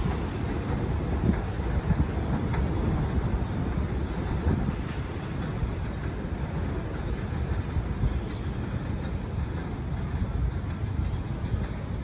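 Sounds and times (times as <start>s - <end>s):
subway train rumbling: 0.0s - 12.0s.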